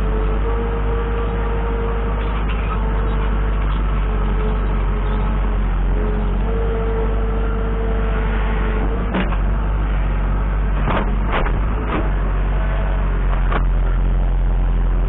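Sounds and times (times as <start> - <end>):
steady whine: 0.0 - 15.0
tractor diesel engine running: 0.0 - 15.0
metal clanks from loader bucket: 10.8 - 12.2.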